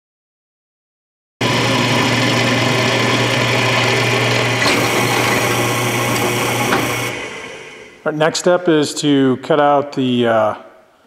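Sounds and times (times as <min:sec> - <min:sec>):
drill bit cutting steel: 0:01.4 - 0:08.1
drill press motor hum: 0:01.4 - 0:08.1.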